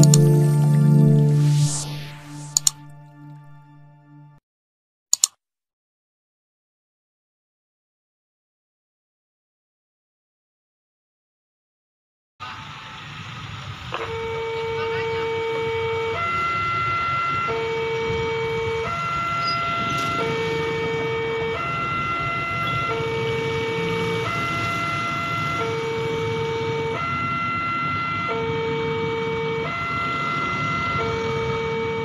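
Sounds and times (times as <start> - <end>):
two-tone level crossing alarm: 0.0 - 4.2, 13.9 - 32.0
motorcycles passing: 18.1 - 27.5.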